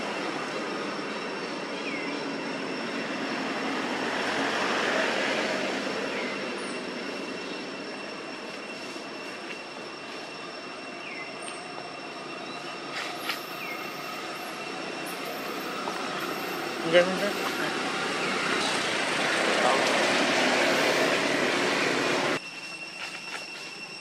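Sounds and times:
shrill drone of forest insects: 0.0s - 24.0s.

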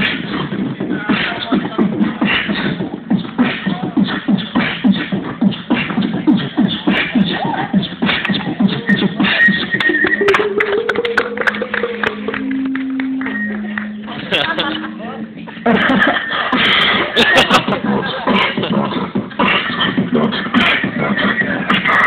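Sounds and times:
percussive vocal-like sounds: 0.0s - 14.8s, 16.4s - 22.0s
hip-hop music thumping beat: 0.0s - 22.0s
held rising note: 10.4s - 15.5s.

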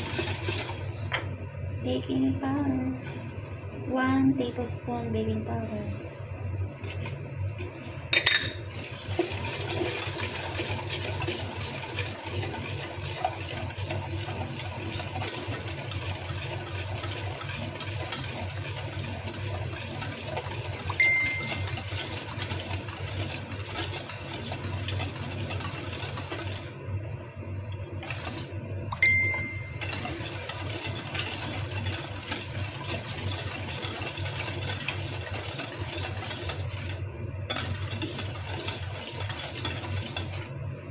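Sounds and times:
whisk rattling in metal bowl: 0.0s - 1.1s, 8.2s - 26.8s, 28.0s - 40.5s
metal bowl ringing: 8.2s - 8.7s, 21.0s - 21.9s, 29.0s - 30.1s.

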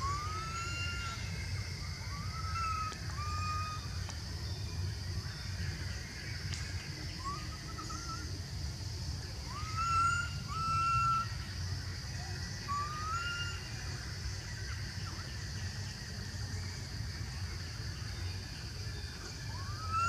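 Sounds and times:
young monkey coo calls: 0.0s - 4.0s, 9.5s - 11.4s, 12.2s - 13.8s
high insect drone: 0.0s - 20.0s.

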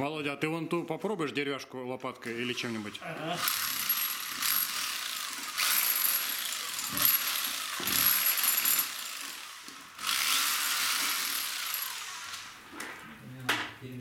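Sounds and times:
rotary hammer chiselling concrete: 3.4s - 12.5s.

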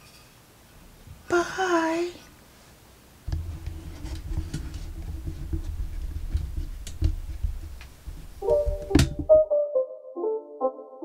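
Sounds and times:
low steady rumble: 3.3s - 9.3s.

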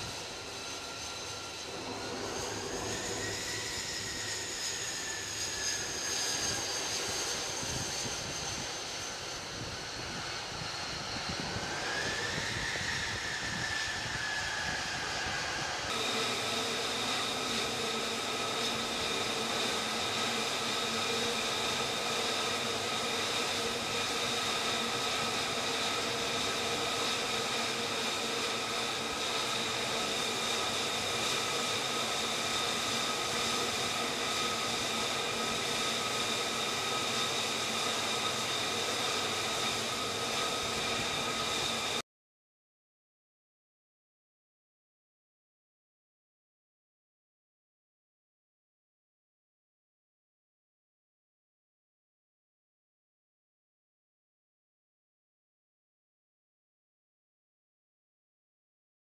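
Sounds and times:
jet engine idling whine: 0.0s - 42.0s.

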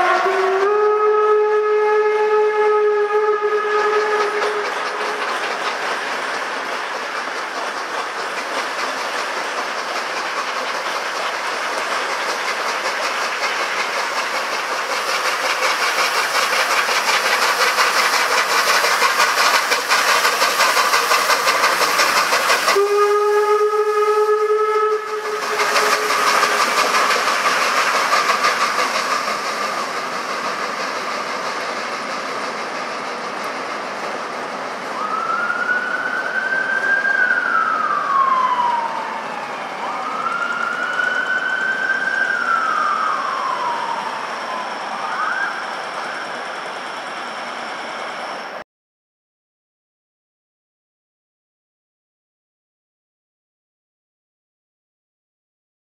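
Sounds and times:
steam whistle: 0.0s - 5.3s, 22.6s - 27.4s, 35.0s - 45.6s
rolling train wheels: 0.0s - 48.6s
steam locomotive chuffing: 0.0s - 48.6s
steam hissing: 2.6s - 48.6s.

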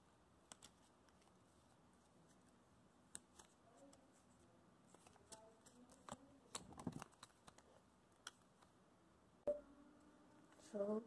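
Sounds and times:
paper rustling and creasing: 3.2s - 7.8s.

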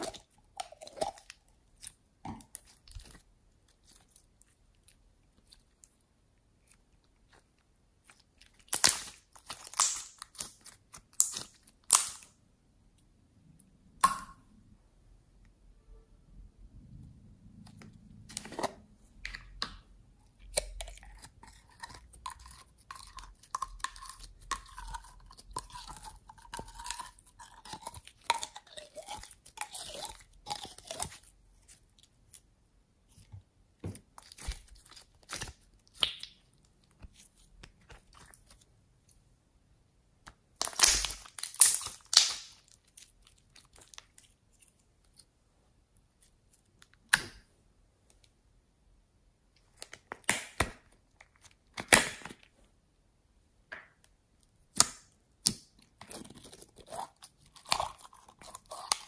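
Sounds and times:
slime crackling and popping: 8.0s - 12.3s, 34.2s - 38.7s, 40.6s - 44.4s.

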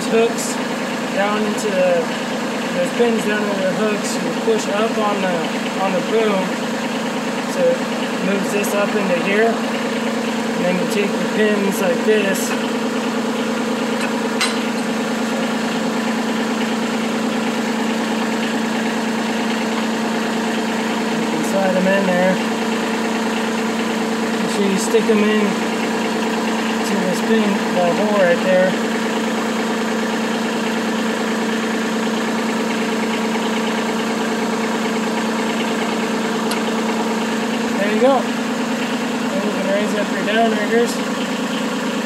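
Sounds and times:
diesel tractor engine idling: 0.0s - 42.0s.

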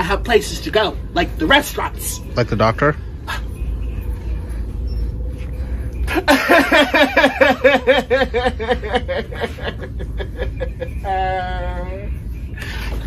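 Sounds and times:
man laughing hysterically: 6.1s - 11.0s.

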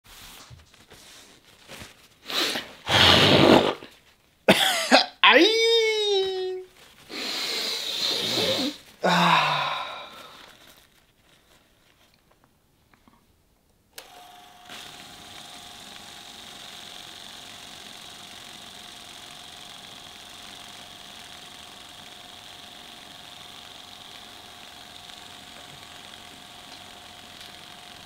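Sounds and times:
person blowing nose: 2.2s - 4.0s, 7.0s - 10.8s
person coughing: 4.5s - 5.2s.

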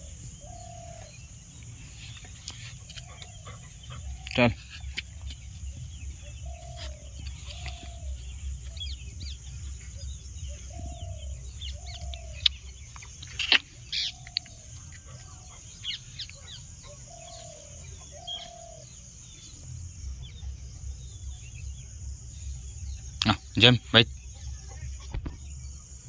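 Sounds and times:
bird low arching call: 0.0s - 19.6s
small birds chirping: 0.0s - 26.0s
steady low rumble: 0.0s - 26.0s.

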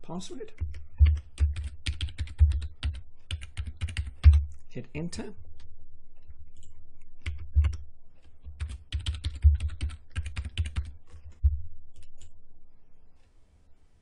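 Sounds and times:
computer keyboard typing: 0.5s - 4.6s, 6.6s - 7.8s, 8.4s - 12.3s
low hum: 4.1s - 8.6s, 10.8s - 14.0s.

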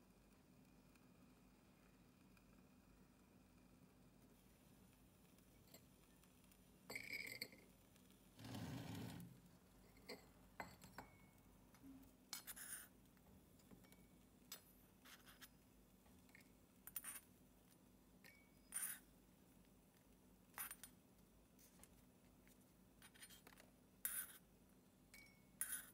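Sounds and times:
spatula scraping a small wok: 8.4s - 9.3s.

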